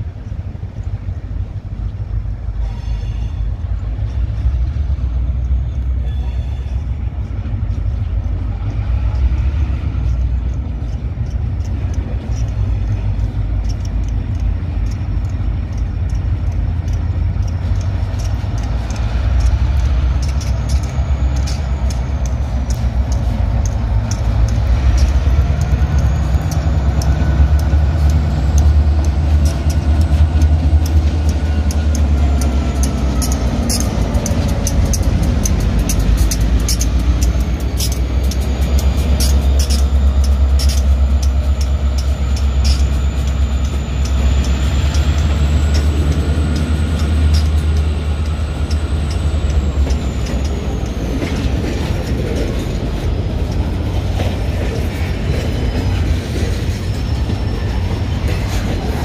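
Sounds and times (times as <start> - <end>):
locomotive engine drone: 0.0 - 59.0
wheels clicking on rails: 0.0 - 59.0.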